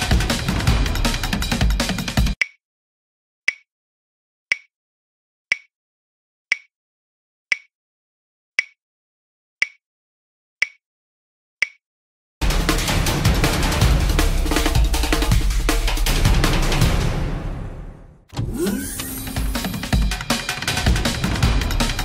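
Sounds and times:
sharp clock ticks: 2.4s - 2.6s, 3.5s - 3.7s, 4.5s - 4.7s, 5.5s - 5.7s, 6.5s - 6.7s, 7.5s - 7.7s, 9.6s - 9.8s.

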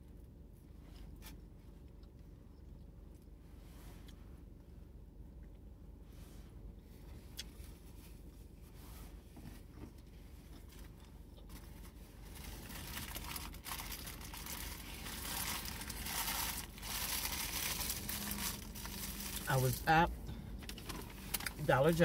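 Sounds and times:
paper packaging crinkling: 11.5s - 19.8s.

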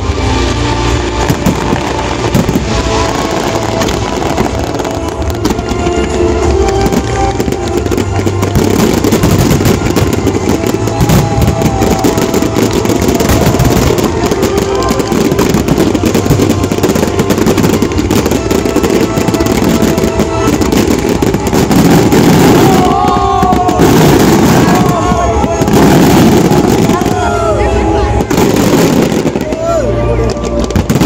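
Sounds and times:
fireworks bursting and crackling: 0.0s - 31.0s
music playing: 0.0s - 31.0s.

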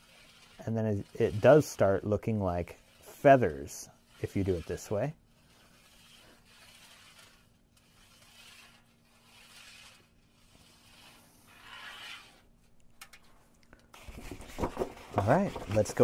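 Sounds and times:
brush handle scraping metal sheet: 0.0s - 12.5s.

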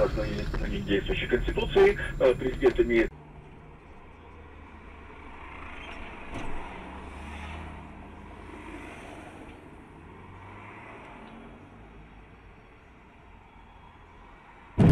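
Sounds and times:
car engine hum: 0.0s - 8.6s
minibus passing: 0.0s - 14.8s.

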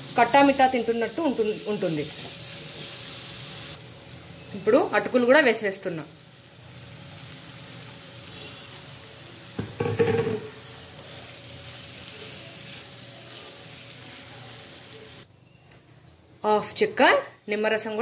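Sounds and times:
food sizzling in oil: 0.0s - 15.3s
spatula stirring in pan: 10.4s - 14.8s.

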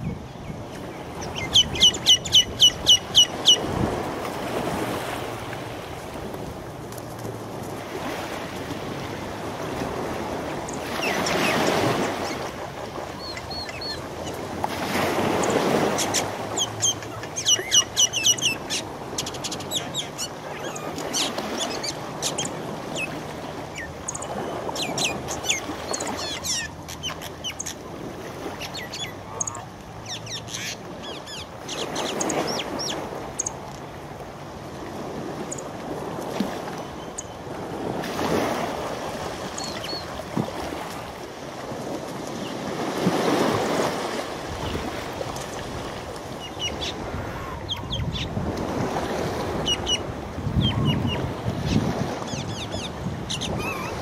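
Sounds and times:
birds harsh calls: 1.1s - 3.8s, 13.1s - 14.4s, 15.2s - 27.8s, 28.4s - 33.5s, 50.6s - 54.0s
bird squawks: 15.4s - 23.1s, 52.3s - 54.0s.

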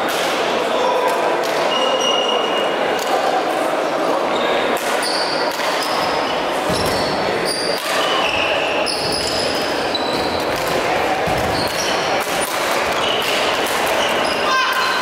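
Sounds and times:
sports shoes squeaking on floor: 1.7s - 2.6s, 4.3s - 12.2s, 12.9s - 15.0s.

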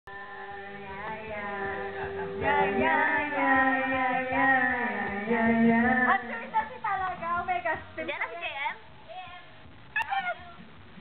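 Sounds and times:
person singing into a microphone: 0.1s - 6.6s
backing music: 0.1s - 11.0s.

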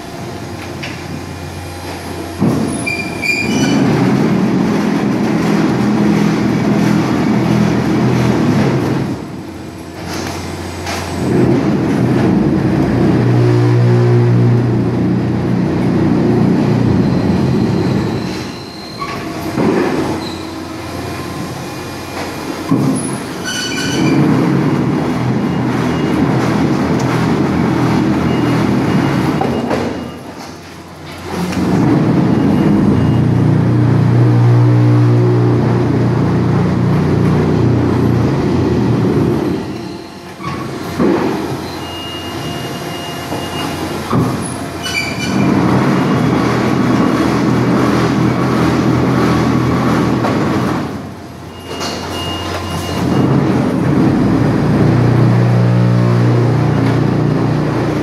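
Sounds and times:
machine hum: 0.0s - 58.0s
high-pitched squeals: 16.7s - 19.4s.

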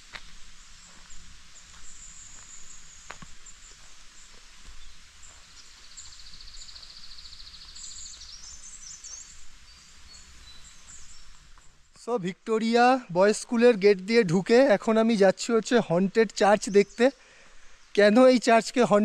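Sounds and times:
high insect hum: 0.0s - 11.8s
bird chirps: 0.8s - 12.2s.

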